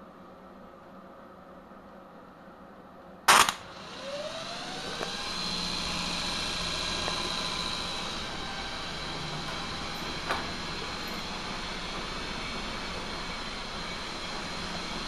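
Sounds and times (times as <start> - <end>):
loud sharp snap: 3.3 - 3.7
electric motor whine: 3.4 - 15.0.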